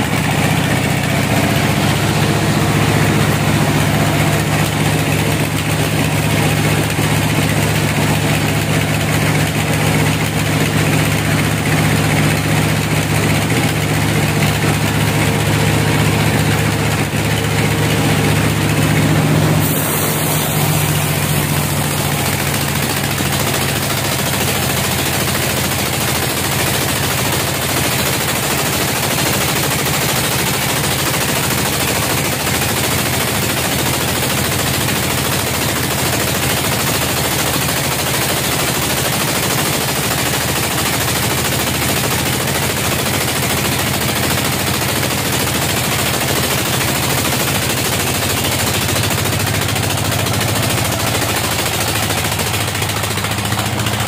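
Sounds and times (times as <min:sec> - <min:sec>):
low machine hum: 0:00.0 - 0:25.6
band saw cutting log: 0:13.5 - 0:25.0.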